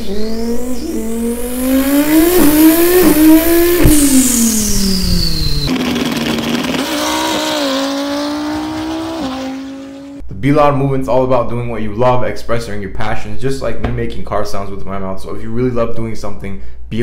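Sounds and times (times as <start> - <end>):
car engine running: 1.1 - 10.2.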